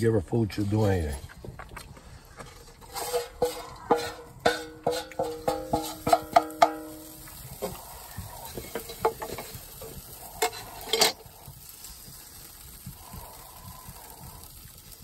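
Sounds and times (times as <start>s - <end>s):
frying sizzle: 2.9s - 15.0s
metal utensil clinking on pan: 3.0s - 7.7s, 8.5s - 9.6s, 10.4s - 11.2s.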